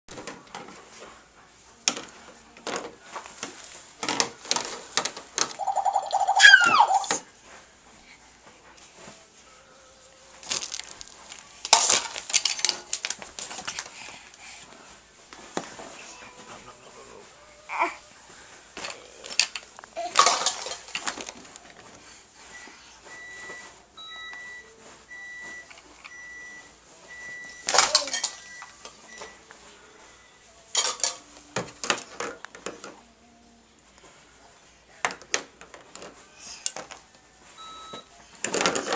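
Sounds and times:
toy pots clattering: 0:10.4 - 0:13.9, 0:18.8 - 0:21.5, 0:27.6 - 0:29.0, 0:30.7 - 0:32.9.

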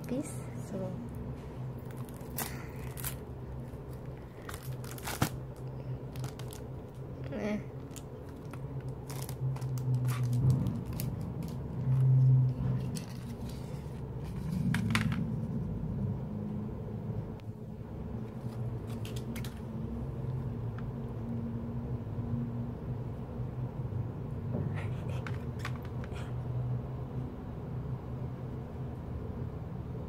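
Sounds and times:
steady low hum: 0:00.0 - 0:30.0
plastic rustling and clicking: 0:03.8 - 0:07.1, 0:07.8 - 0:13.6.

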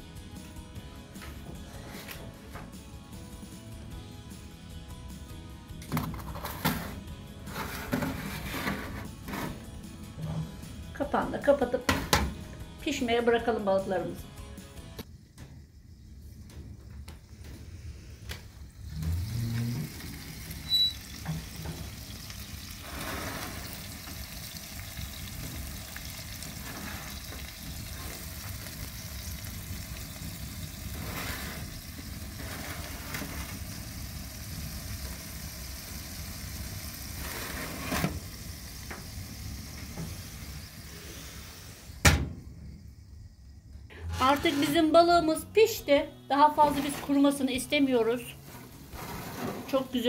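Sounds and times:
fish sizzling in oven: 0:06.2 - 0:09.8, 0:17.9 - 0:42.3, 0:46.3 - 0:50.0.

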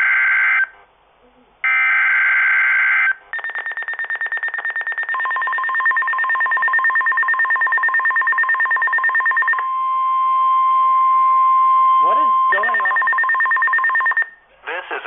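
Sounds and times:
rapid high-pitched alarm beeping: 0:03.4 - 0:10.2, 0:10.8 - 0:14.3
steady warning tone: 0:04.9 - 0:14.3.

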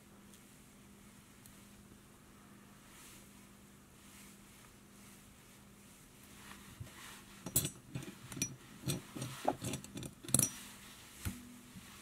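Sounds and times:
small tools clicking and clinking: 0:07.4 - 0:10.6.

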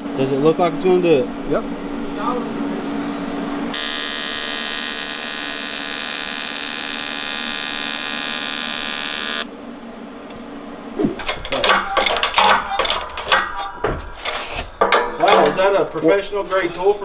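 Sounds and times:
welding arc buzzing: 0:01.7 - 0:13.5
metallic clanks and knocks: 0:11.2 - 0:15.8.

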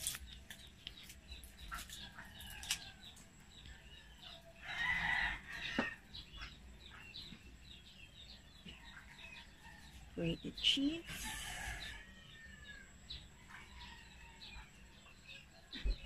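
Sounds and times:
chickens clucking: 0:00.8 - 0:07.6.

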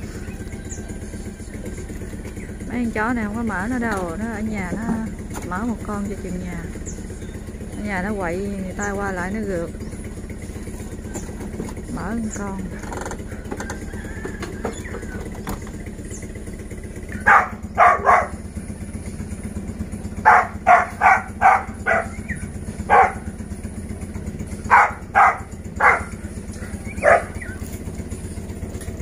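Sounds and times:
low engine hum: 0:00.0 - 0:29.0
dog barking: 0:17.1 - 0:18.5, 0:20.2 - 0:23.4, 0:24.6 - 0:27.6.

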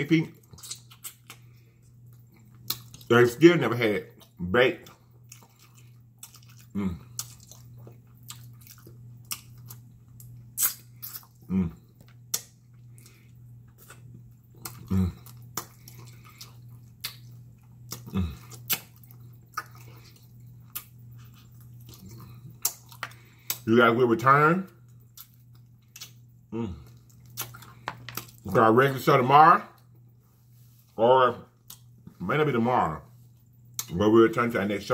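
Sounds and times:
steady low hum: 0:00.0 - 0:34.9
wet mouth eating sounds: 0:00.3 - 0:03.1, 0:04.1 - 0:23.7, 0:24.8 - 0:28.5.

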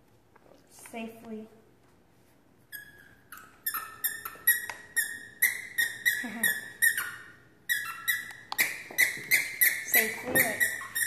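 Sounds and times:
squeaky dog toy squeaking: 0:02.7 - 0:11.0.

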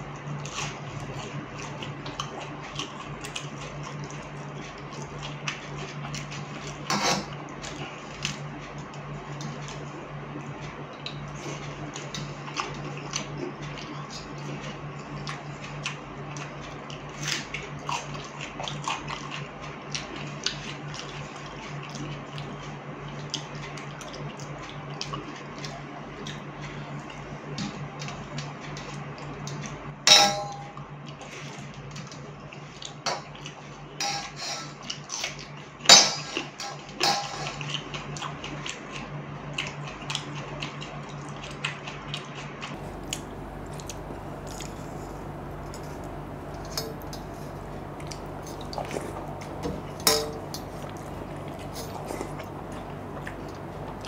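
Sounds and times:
ringing clinks on steel plate: 0:30.1 - 0:30.7
hand squelching wet rice: 0:42.8 - 0:54.0
steady low hum: 0:42.8 - 0:54.0.

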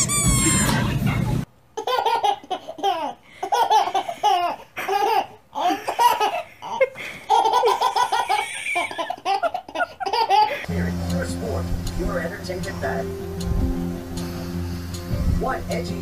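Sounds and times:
baby laughing: 0:01.8 - 0:10.7.

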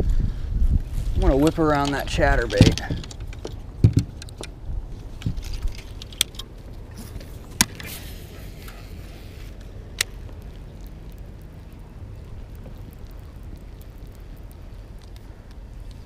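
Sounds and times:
fishing gear clicking and rattling: 0:01.3 - 0:10.4.

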